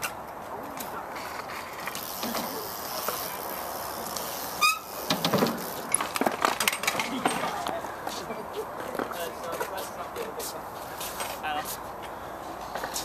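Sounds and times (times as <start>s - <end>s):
bike tyres rolling on concrete: 0.0s - 13.0s
short squeak: 4.6s - 5.0s
bike knocking on ramp: 5.0s - 7.5s.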